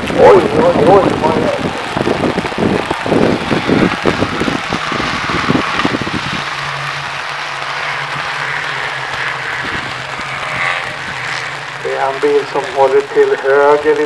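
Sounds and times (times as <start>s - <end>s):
race car engine drone: 0.0s - 14.0s
rain and tyre spray hiss: 0.0s - 14.0s.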